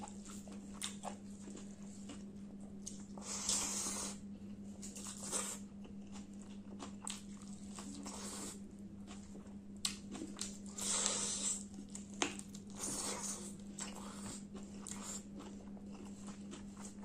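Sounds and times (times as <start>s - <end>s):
chewing and smacking: 0.0s - 17.0s.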